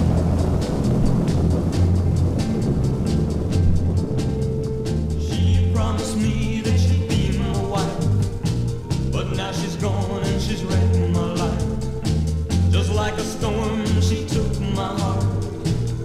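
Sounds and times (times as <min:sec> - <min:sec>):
doo-wop rock and roll record: 0:00.0 - 0:16.0
steady drum beat: 0:00.0 - 0:16.0
stepping bass line: 0:00.0 - 0:16.0
person singing with vibrato: 0:05.2 - 0:12.0, 0:12.7 - 0:16.0.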